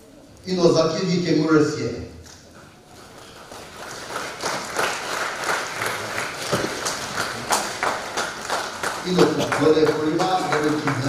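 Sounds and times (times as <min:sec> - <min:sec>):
congregation applauding: 0:02.7 - 0:11.0.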